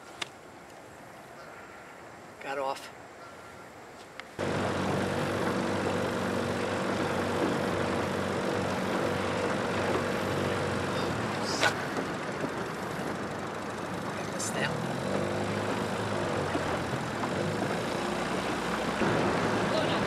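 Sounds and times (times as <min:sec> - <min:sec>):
outboard motor running: 0:04.4 - 0:20.0.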